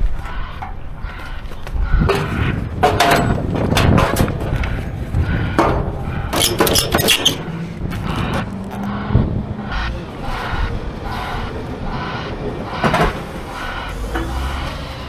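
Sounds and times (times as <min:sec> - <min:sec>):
metallic clanks and knocks: 0:02.0 - 0:07.6, 0:12.4 - 0:14.8.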